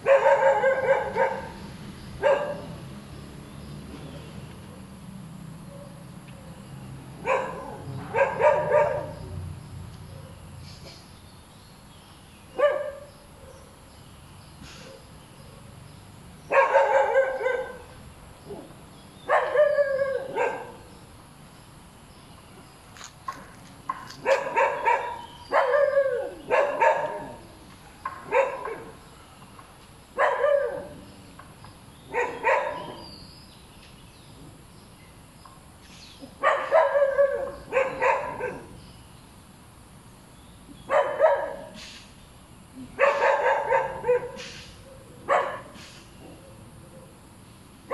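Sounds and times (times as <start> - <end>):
dog barking: 0.0 - 1.6, 2.2 - 2.8, 5.7 - 6.0, 7.2 - 9.3, 12.6 - 13.7, 16.5 - 18.0, 19.3 - 20.9, 24.2 - 27.5, 28.2 - 29.0, 30.2 - 31.1, 32.1 - 33.1, 36.3 - 38.8, 40.9 - 41.8, 43.0 - 46.6.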